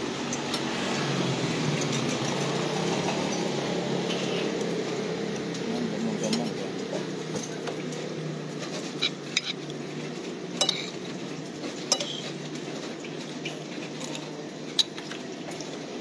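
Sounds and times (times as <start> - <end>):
metal spoon clinking on plate: 10.6 - 10.9, 11.9 - 12.3.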